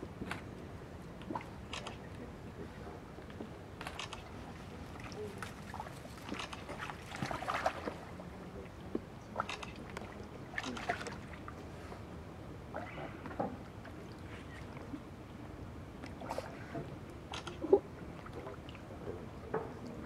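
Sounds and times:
otters splashing in water: 5.0s - 8.1s.

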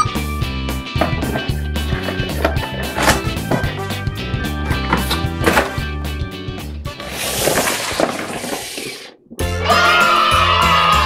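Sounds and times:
background music with bass line: 0.0s - 7.0s.

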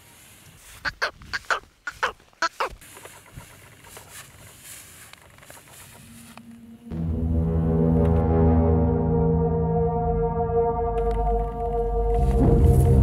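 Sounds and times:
fowl clucking: 0.8s - 3.6s.

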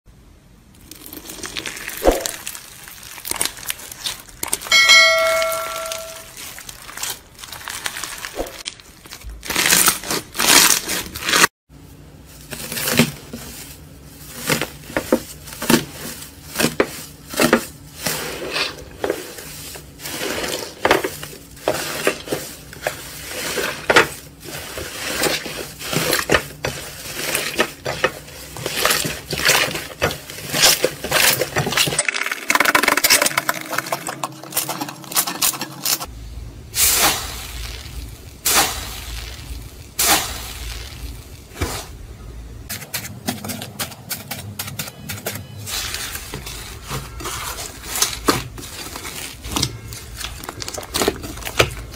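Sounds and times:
slime crackling and popping: 0.8s - 4.8s, 6.3s - 11.5s, 36.8s - 41.8s, 45.8s - 51.9s.

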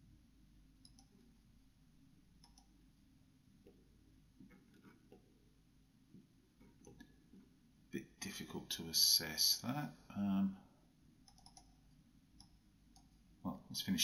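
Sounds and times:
faint computer mouse clicks: 0.8s - 1.2s, 2.4s - 2.8s, 11.2s - 13.2s.

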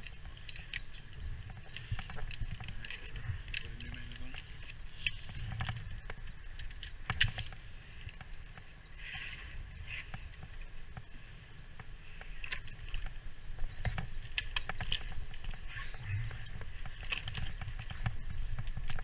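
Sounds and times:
metal climbing hardware clinking: 0.0s - 8.7s, 13.7s - 19.0s.

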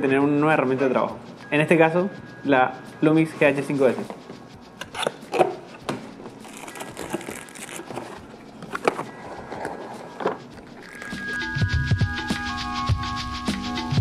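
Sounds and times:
background music: 0.0s - 14.0s
plastic wrap crinkling: 6.4s - 11.4s
cardboard rubbing and sliding: 6.5s - 11.4s.

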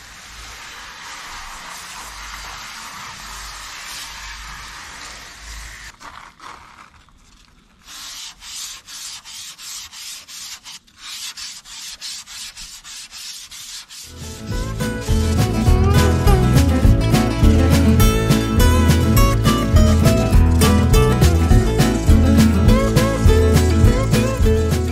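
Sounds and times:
water hissing from hose nozzle: 0.0s - 6.9s
wet sandpaper rubbing by hand: 0.0s - 24.9s
acoustic guitar music: 14.1s - 24.9s.

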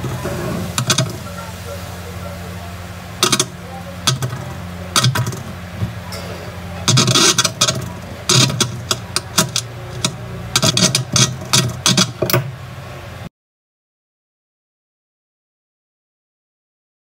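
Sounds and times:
loudspeaker low hum: 0.0s - 13.3s.

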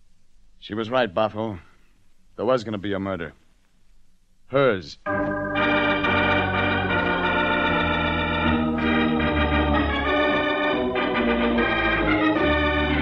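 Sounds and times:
organ sustained chords: 5.0s - 13.0s.

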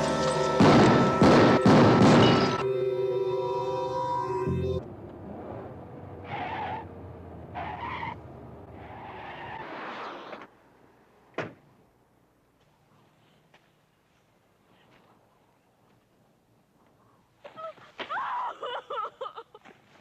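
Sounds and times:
car engine: 0.0s - 9.6s
tyres skidding on road: 5.1s - 10.8s.

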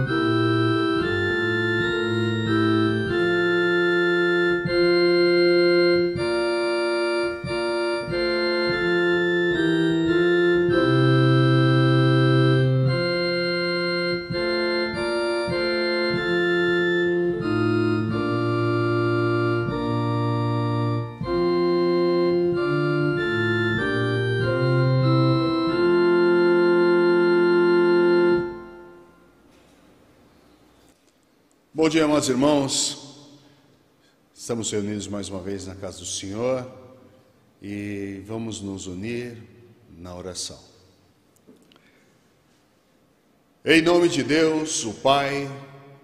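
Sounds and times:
organ playing a hymn: 0.0s - 29.9s, 31.8s - 33.6s, 43.6s - 46.0s.

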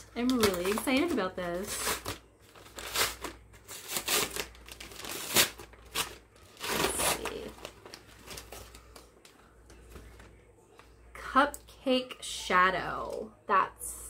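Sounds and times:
taped package crinkling and tearing: 0.0s - 10.2s.

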